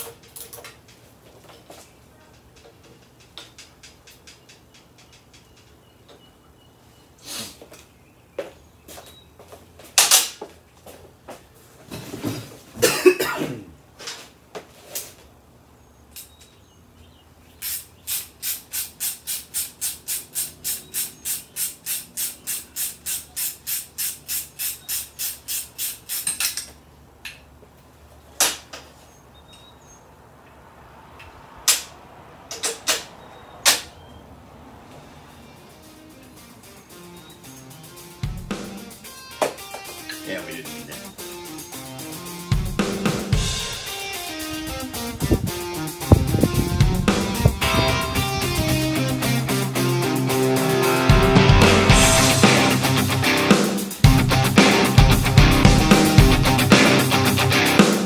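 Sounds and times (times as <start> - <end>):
sharp ratchet clicks: 17.6 - 26.7.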